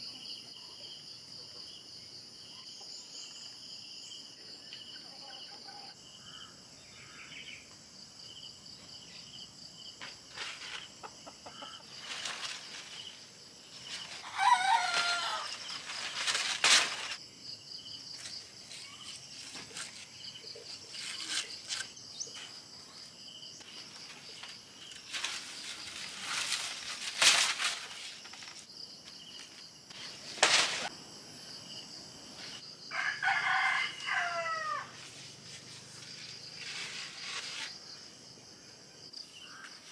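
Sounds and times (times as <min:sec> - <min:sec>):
crickets chirping: 0:00.0 - 0:39.9
rooster crowing: 0:14.2 - 0:15.7, 0:32.9 - 0:35.0.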